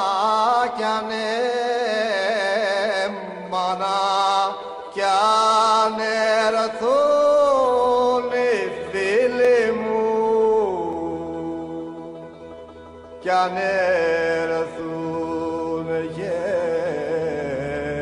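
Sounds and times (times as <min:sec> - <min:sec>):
person chanting slow melody: 0:00.0 - 0:18.0.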